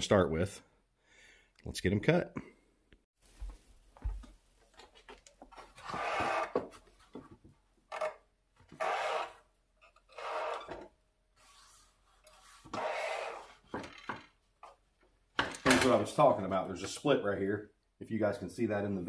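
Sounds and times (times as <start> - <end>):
wood scraping against wood: 8.7 - 14.8.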